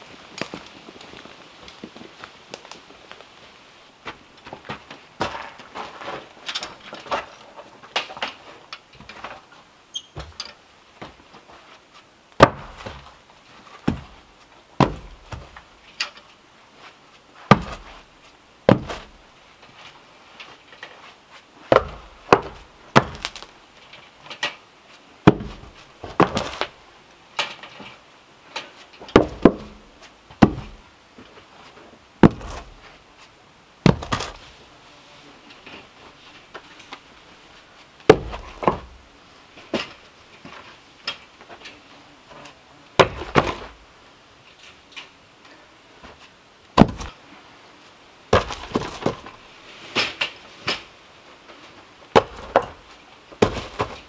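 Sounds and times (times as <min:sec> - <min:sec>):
wooden logs knocking: 0:12.4 - 0:13.1, 0:13.8 - 0:15.7, 0:17.5 - 0:18.0, 0:18.7 - 0:19.2, 0:21.7 - 0:23.5, 0:25.2 - 0:26.7, 0:29.0 - 0:30.8, 0:32.2 - 0:32.9, 0:33.8 - 0:34.4, 0:38.0 - 0:39.0, 0:43.0 - 0:43.8, 0:46.8 - 0:47.2, 0:48.3 - 0:49.4, 0:52.1 - 0:54.0.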